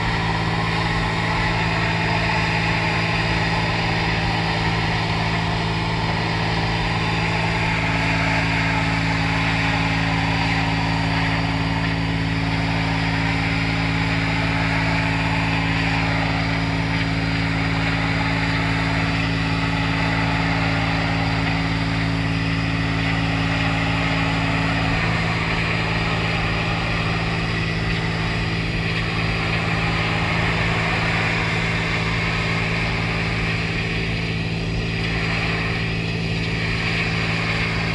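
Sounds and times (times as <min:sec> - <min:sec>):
pressure washer motor hum: 0:00.0 - 0:37.9.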